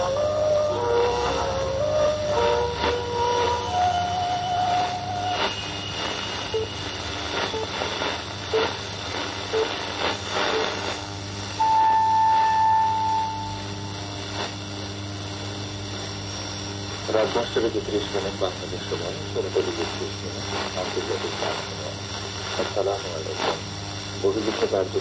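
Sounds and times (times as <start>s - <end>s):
short radio tones: 0.0s - 11.0s, 17.1s - 23.6s
radio static hiss and hum: 0.0s - 25.0s
thin steady radio tones: 0.0s - 25.0s
bright radio whistle: 2.3s - 8.8s, 11.6s - 13.9s.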